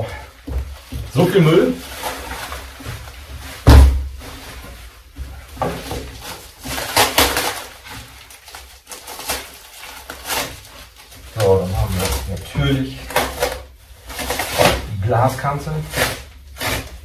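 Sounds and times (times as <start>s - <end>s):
plastic film rustling and crinkling: 0.0s - 17.0s
heavy thump: 3.6s - 4.2s.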